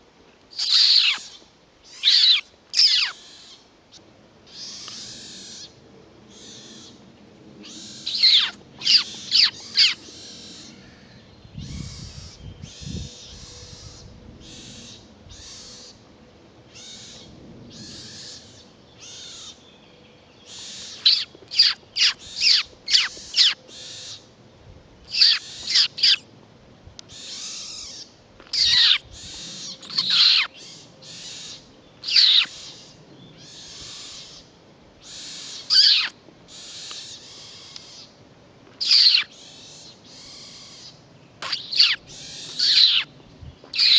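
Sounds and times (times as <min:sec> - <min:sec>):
animal squeaks: 0:00.6 - 0:03.4, 0:07.6 - 0:10.7, 0:25.1 - 0:26.2, 0:27.2 - 0:32.8, 0:35.1 - 0:36.1, 0:38.8 - 0:39.3, 0:40.2 - 0:43.1.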